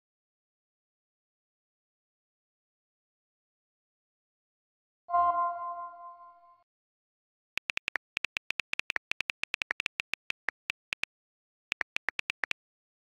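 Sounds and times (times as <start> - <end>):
phone keyboard taps: 7.6 - 11.1, 11.7 - 12.6.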